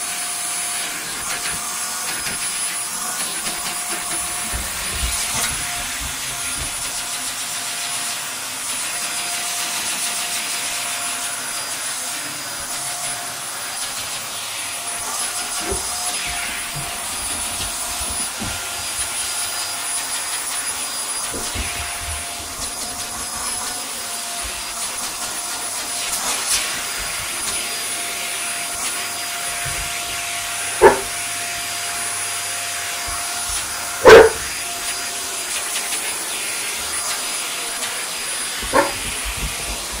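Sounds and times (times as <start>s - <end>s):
vacuum cleaner motor whine: 0.0s - 40.0s
dog barking: 30.8s - 31.2s, 34.0s - 34.5s, 38.6s - 39.2s.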